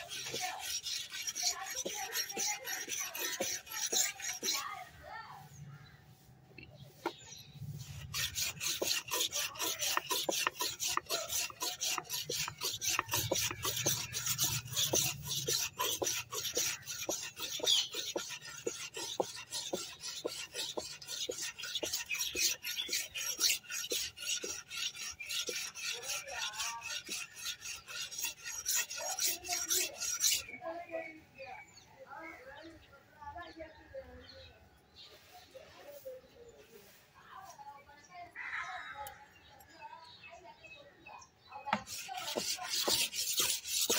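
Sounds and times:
blade scraping on sharpening stick: 0.0s - 4.8s, 7.8s - 30.6s, 41.7s - 43.9s.

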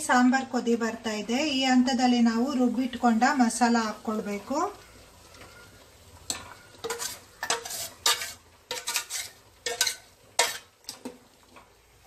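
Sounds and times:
steel ladle clanking on metal: 6.3s - 10.7s.

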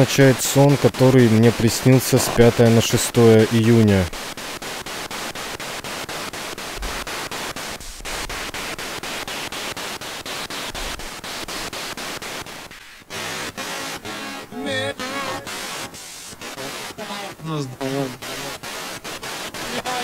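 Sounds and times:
radio static chopping: 0.0s - 20.0s
brief voice through static: 13.8s - 18.7s, 19.6s - 20.0s.

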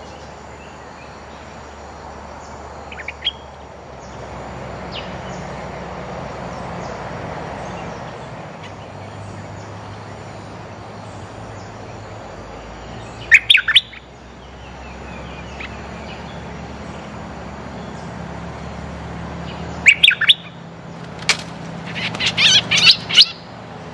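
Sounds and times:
steady low background noise: 0.0s - 23.9s
bird calls with sharp quick notes: 19.5s - 23.5s.

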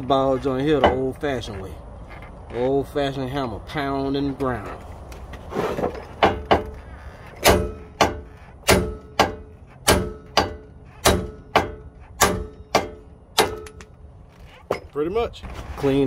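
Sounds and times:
sledgehammer clanging on steel: 0.1s - 1.3s, 5.6s - 15.2s.

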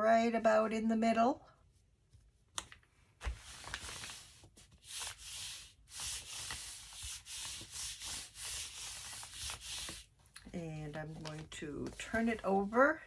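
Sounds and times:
palms rubbing paper envelope: 3.2s - 13.0s.

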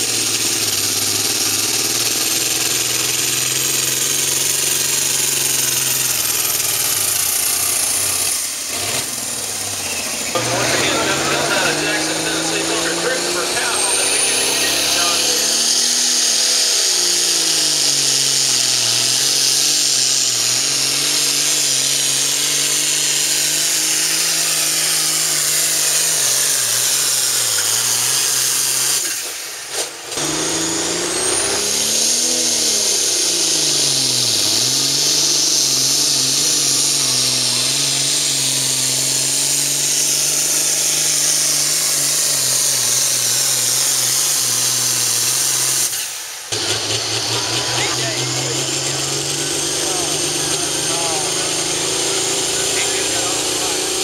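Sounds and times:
diesel engines running under load: 0.0s - 54.0s
high-pitched turbo hiss: 9.9s - 29.6s.

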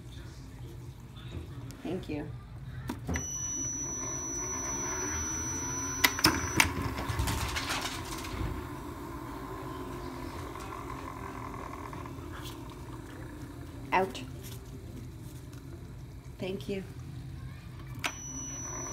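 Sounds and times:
ball launcher humming: 2.9s - 16.2s.

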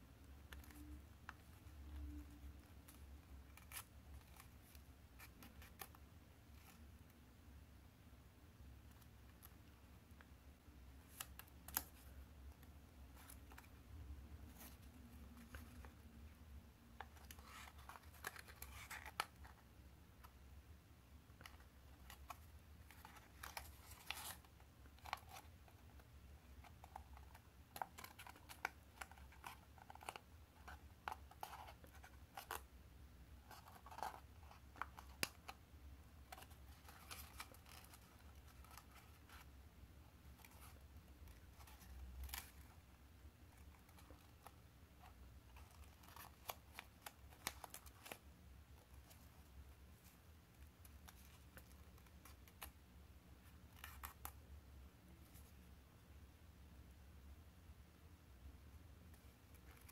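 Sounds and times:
paper being folded and creased: 17.0s - 19.6s, 21.4s - 32.6s, 36.2s - 39.5s, 45.6s - 48.2s.

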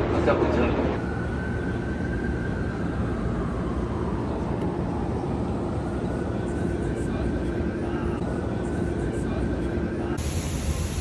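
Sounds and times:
city traffic rumble: 0.0s - 11.0s
faint steady whine: 0.2s - 11.0s.

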